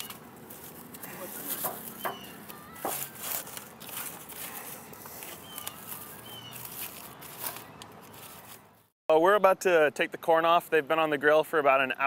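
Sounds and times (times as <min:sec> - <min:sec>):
corn husks rustling and crackling: 0:00.0 - 0:08.9.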